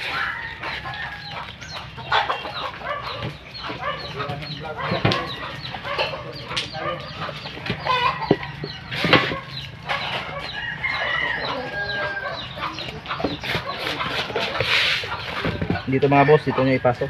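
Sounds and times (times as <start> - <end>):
rooster crowing: 0.0 - 1.5, 7.8 - 12.9, 16.0 - 17.0
chickens clucking: 0.0 - 17.0.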